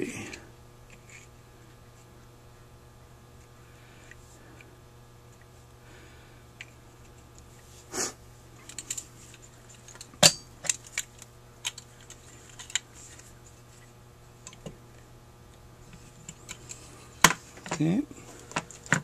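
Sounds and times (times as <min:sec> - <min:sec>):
metal parts clinking on workbench: 0:09.9 - 0:11.0.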